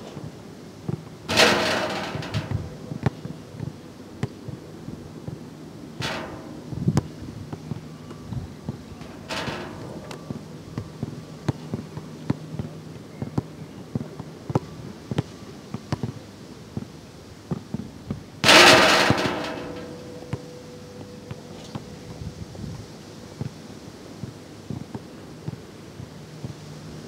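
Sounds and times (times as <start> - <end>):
ball clanging off metal rim: 1.3 - 3.3, 6.0 - 7.2, 9.0 - 10.5, 18.4 - 20.6.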